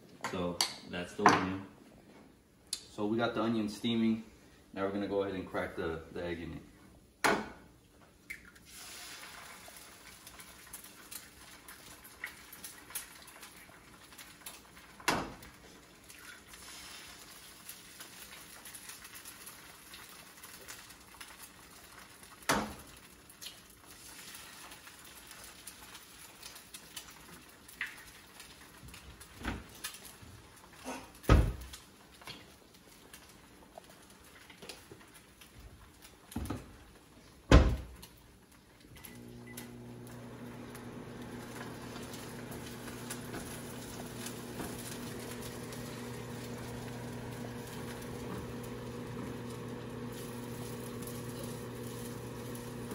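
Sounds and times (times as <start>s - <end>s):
eggs and onions sizzling: 8.6s - 37.2s, 37.9s - 52.9s
eggs cracked against pan: 17.2s - 28.6s.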